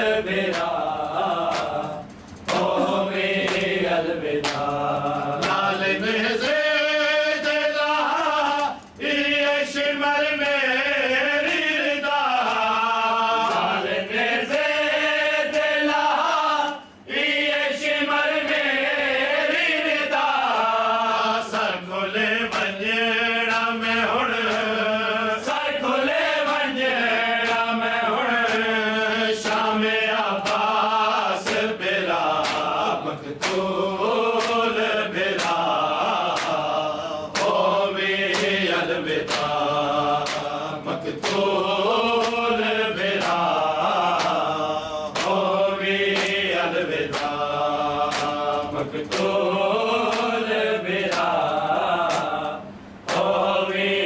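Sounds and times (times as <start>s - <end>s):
men chanting in unison: 0.0s - 54.0s
hands slapping chests: 1.5s - 1.8s, 32.4s - 32.7s, 43.2s - 44.4s, 47.1s - 47.4s, 48.1s - 49.4s.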